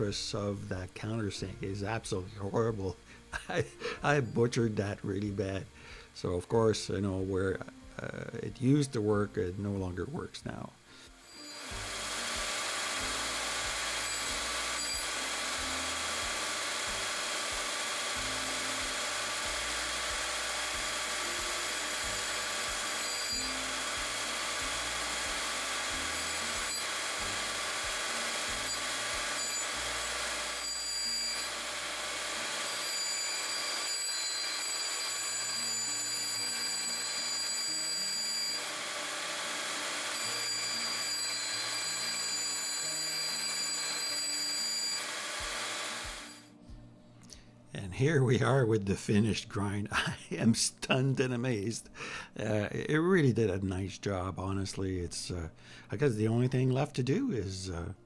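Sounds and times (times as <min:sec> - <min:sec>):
grinding wheel grinding metal: 0:11.2 - 0:46.4
high ringing tones: 0:21.6 - 0:24.1, 0:28.4 - 0:31.7, 0:32.5 - 0:38.7, 0:40.1 - 0:45.2.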